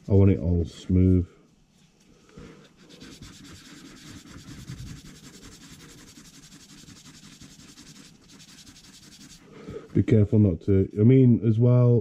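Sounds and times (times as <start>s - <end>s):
sanding stick rasping on plastic: 2.6s - 9.5s.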